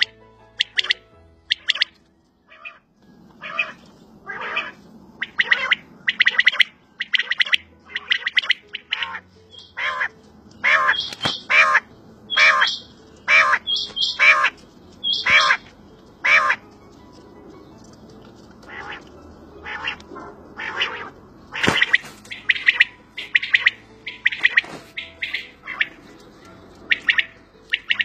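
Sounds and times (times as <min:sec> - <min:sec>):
quail calling: 0:00.0 - 0:16.6, 0:18.6 - 0:26.2, 0:26.8 - 0:28.0
high-pitched bird notes: 0:00.0 - 0:18.0, 0:18.6 - 0:28.0.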